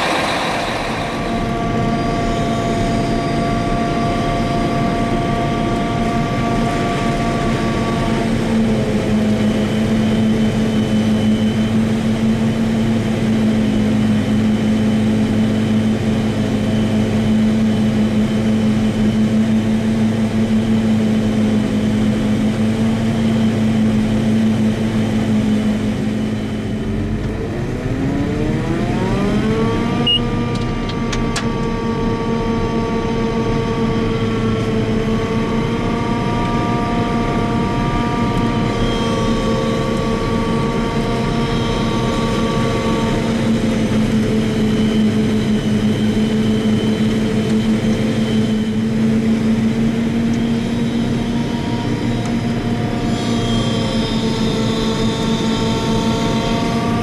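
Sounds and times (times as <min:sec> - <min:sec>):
whining tones: 0:00.0 - 0:11.8, 0:26.2 - 0:57.0
harvester engine and chopper drone: 0:00.0 - 0:57.0.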